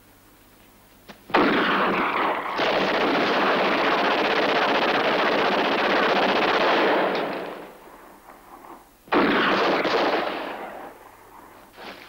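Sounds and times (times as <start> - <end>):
automatic gunfire: 1.3 - 7.8, 9.1 - 11.0.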